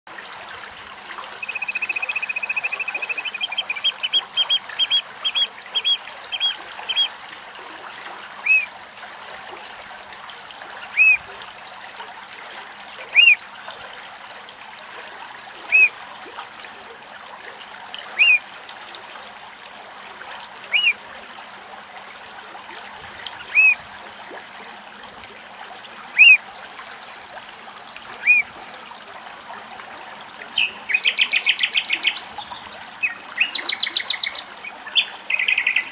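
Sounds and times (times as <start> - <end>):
oystercatcher piping calls: 1.4 - 7.1, 8.4 - 8.7, 11.0 - 11.2, 13.2 - 13.4, 15.7 - 15.9, 18.2 - 18.4, 20.7 - 21.0, 23.4 - 23.8, 26.2 - 26.4, 28.2 - 28.4.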